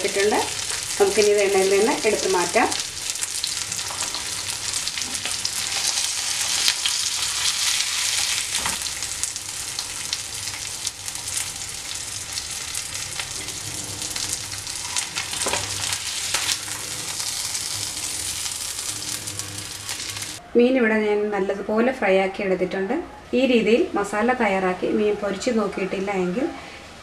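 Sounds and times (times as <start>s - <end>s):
hot oil sizzling in a frying pan: 0.0s - 20.4s.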